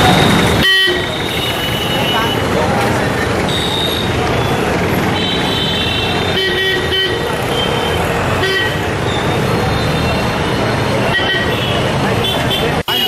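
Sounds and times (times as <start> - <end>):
vehicle horns honking: 0.0 - 2.6, 3.3 - 13.0
street traffic: 0.0 - 13.0.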